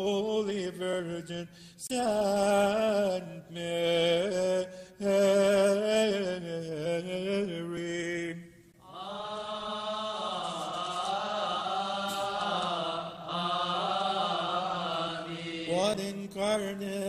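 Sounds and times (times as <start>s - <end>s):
man chanting: 0.0s - 8.5s, 15.2s - 17.0s.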